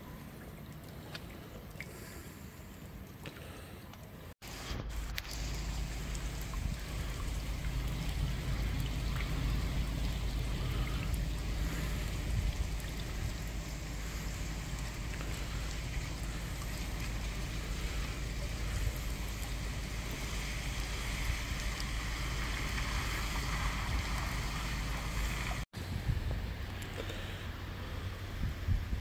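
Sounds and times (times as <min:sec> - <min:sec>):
running water: 0:00.0 - 0:25.7
heavy rain hissing: 0:04.4 - 0:29.0
low rumble: 0:04.5 - 0:29.0.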